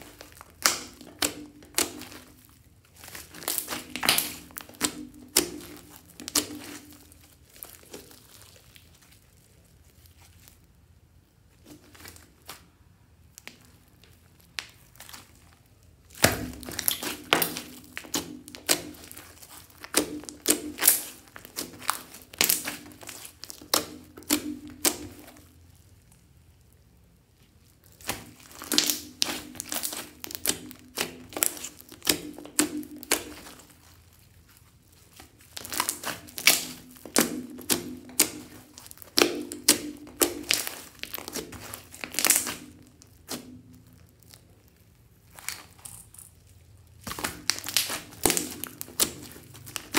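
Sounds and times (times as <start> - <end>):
slime crackling pops: 0.0 - 8.8, 16.1 - 25.6, 27.8 - 33.9, 35.1 - 44.4, 47.0 - 49.9.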